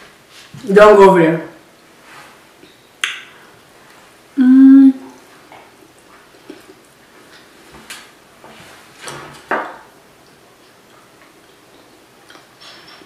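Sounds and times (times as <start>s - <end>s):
chewing crunches: 5.8s - 6.9s.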